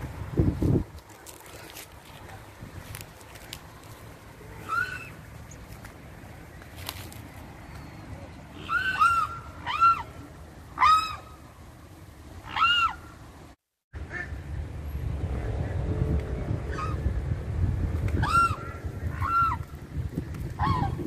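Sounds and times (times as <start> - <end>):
cygnets whistling calls: 4.6 - 5.6.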